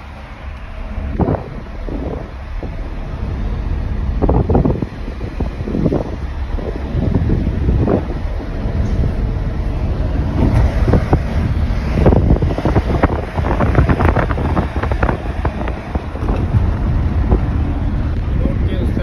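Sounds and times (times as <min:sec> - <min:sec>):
road noise rumble: 0:00.0 - 0:19.0
wind buffeting microphone: 0:00.0 - 0:19.0.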